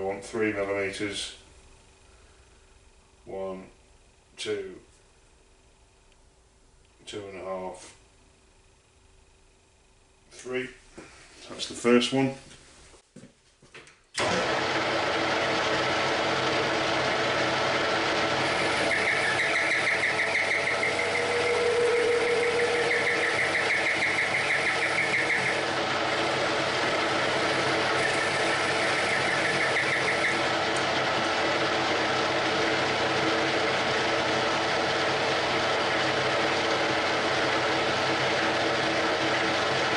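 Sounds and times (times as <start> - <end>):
metal lathe running: 14.2 - 39.9.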